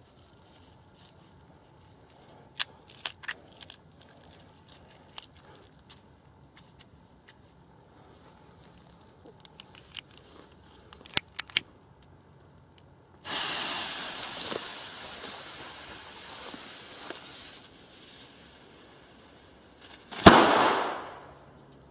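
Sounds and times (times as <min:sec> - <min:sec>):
firecracker bang: 0:13.2 - 0:17.7, 0:20.0 - 0:21.4
fuse hissing: 0:13.2 - 0:19.6.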